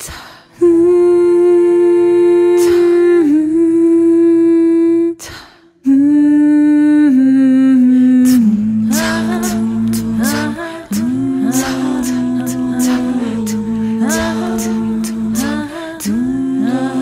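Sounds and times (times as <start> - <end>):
breath: 0.0 - 0.6, 5.2 - 5.8
woman humming: 5.8 - 17.0.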